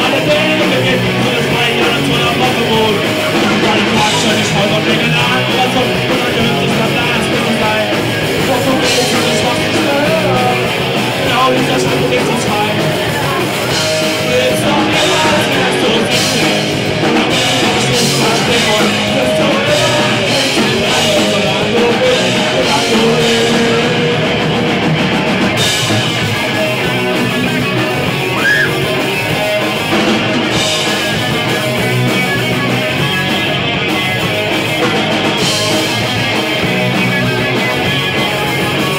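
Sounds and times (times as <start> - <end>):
person singing: 0.0 - 24.9
drum kit with crashing cymbals: 0.0 - 38.9
electric guitars: 0.0 - 38.9.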